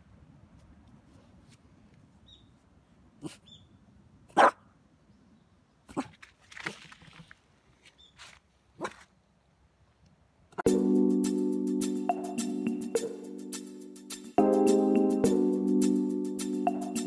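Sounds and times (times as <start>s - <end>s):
small dog barking: 4.3s - 4.6s, 8.8s - 9.1s.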